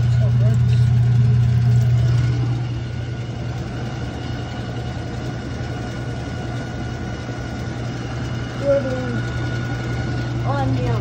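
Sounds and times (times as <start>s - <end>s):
rattling grinding noise: 0.0s - 11.0s
washing machine humming: 0.0s - 11.0s.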